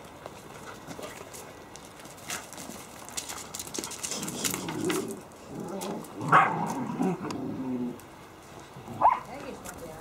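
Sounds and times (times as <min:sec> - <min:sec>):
puppies growling playfully: 0:04.1 - 0:08.0
puppy barking: 0:06.3 - 0:06.6, 0:09.0 - 0:09.3.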